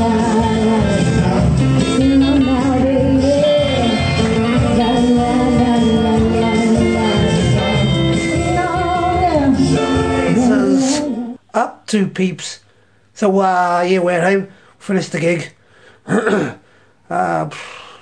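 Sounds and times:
acoustic guitar: 0.0 - 11.4
woman singing into a microphone: 0.0 - 11.4.

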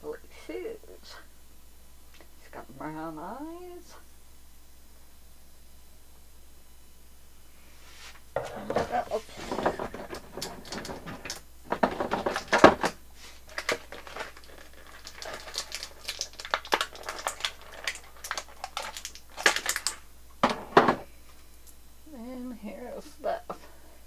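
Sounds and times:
plastic packaging crinkling: 8.5 - 20.1.

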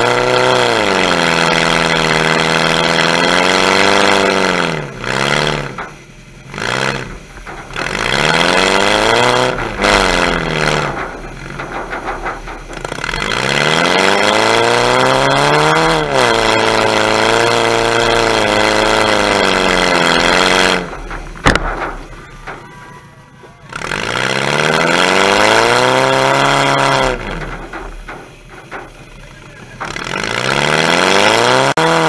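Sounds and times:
car engine revving: 0.0 - 32.0
sharp knock: 19.4 - 22.8.

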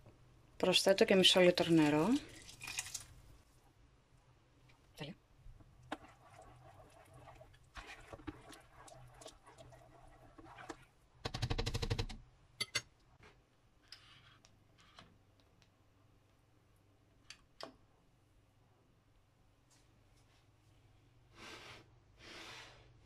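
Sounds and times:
plastic spoon scraping metal pot: 5.8 - 10.9.

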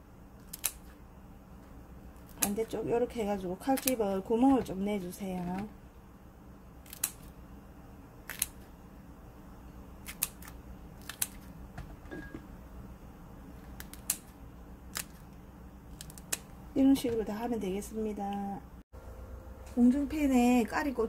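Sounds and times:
scissors snipping: 0.4 - 1.0, 2.2 - 2.8, 3.6 - 4.2, 6.8 - 7.4, 8.2 - 8.7, 10.0 - 11.5, 13.7 - 15.2, 15.9 - 16.5.

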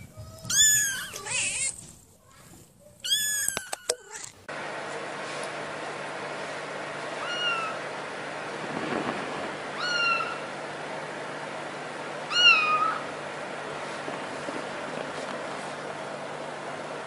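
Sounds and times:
kitten mewing: 0.3 - 1.8, 7.2 - 7.8, 9.8 - 10.4, 12.3 - 13.0.

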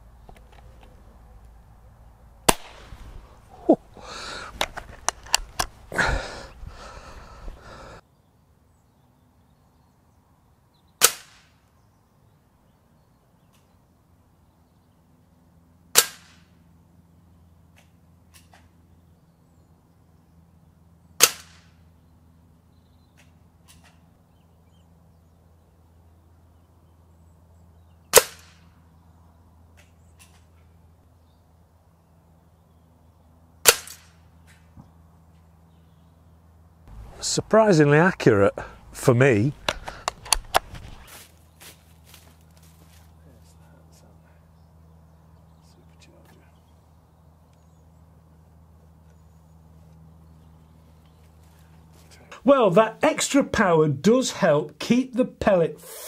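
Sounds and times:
air pistol shots: 2.4 - 3.0, 11.0 - 11.6, 15.9 - 16.5, 21.2 - 21.8, 28.1 - 28.6, 33.6 - 34.2.

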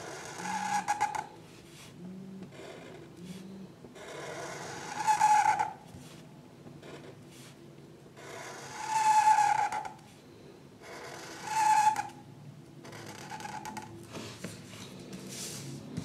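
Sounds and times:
squeaky drawing strokes on paper: 0.0 - 6.2, 8.2 - 10.0, 10.8 - 12.2, 12.8 - 14.5.

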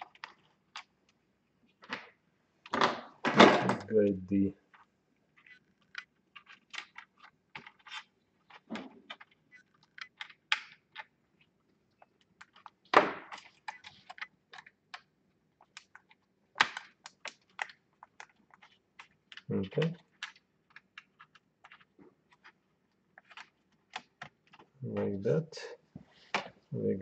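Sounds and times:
screwdriver clicking in laptop: 9.1 - 11.1.

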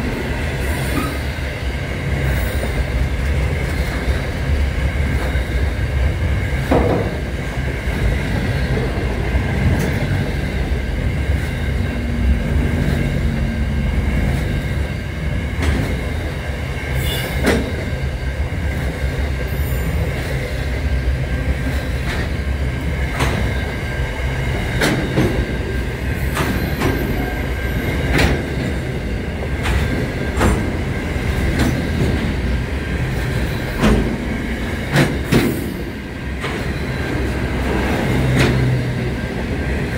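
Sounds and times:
train wheels rumbling on rail: 0.0 - 39.9
wheels clacking over rail joints: 24.6 - 39.9.

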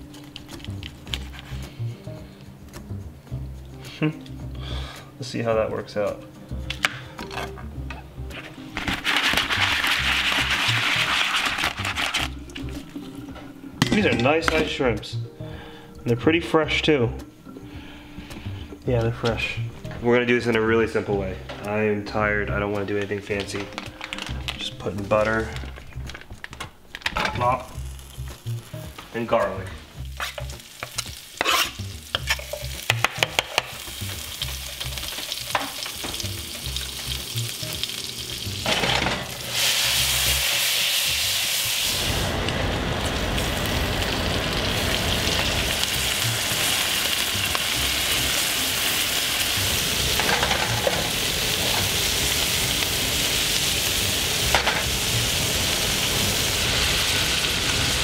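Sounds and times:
spatula scraping pan: 8.3 - 12.3, 30.1 - 33.7
shrimp frying with loud hiss: 8.8 - 12.9, 27.5 - 58.0
butter sizzling in frying pan: 8.8 - 14.6, 27.4 - 58.0.

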